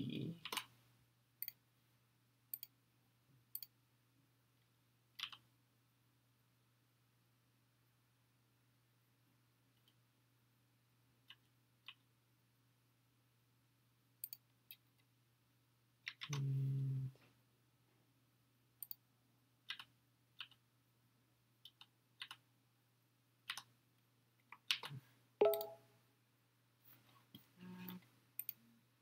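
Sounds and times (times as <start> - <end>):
computer mouse clicks: 1.4 - 1.6, 2.5 - 2.8, 3.5 - 3.8, 5.2 - 5.4, 14.2 - 14.8, 18.8 - 19.0, 19.6 - 20.6, 21.6 - 22.4, 23.4 - 23.7, 24.4 - 25.8, 27.3 - 28.6
keyboard keystrokes: 24.6 - 25.8.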